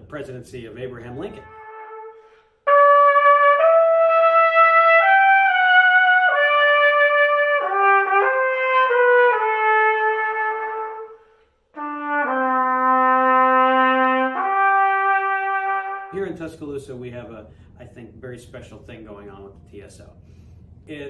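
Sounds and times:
solo trumpet melody: 1.0s - 16.4s.

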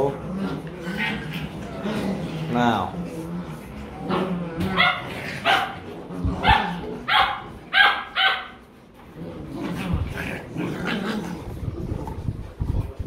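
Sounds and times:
puppies yapping barks: 4.7s - 8.7s.

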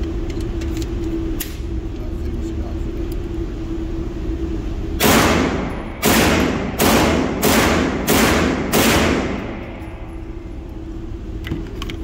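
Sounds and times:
gunshots indoors: 5.0s - 10.4s.

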